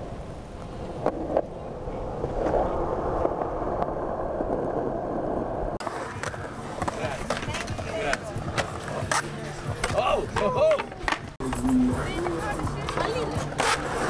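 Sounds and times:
low rushing noise: 0:00.0 - 0:06.6
skateboard wheels rolling on concrete: 0:00.0 - 0:14.0.

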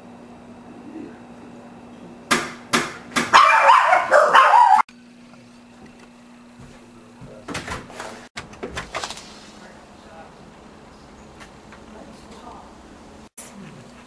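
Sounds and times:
dog barking: 0:03.3 - 0:04.9.

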